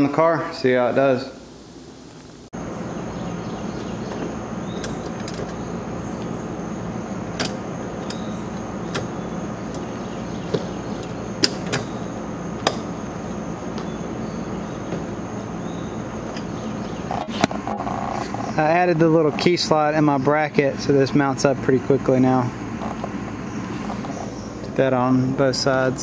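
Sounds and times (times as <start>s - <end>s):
outdoor background hum: 0.0s - 26.0s
metal brackets clicking and knocking: 10.5s - 11.9s.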